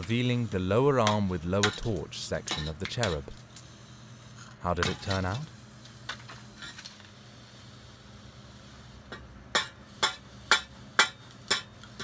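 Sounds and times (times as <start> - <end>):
hammer striking metal: 9.5 - 11.8.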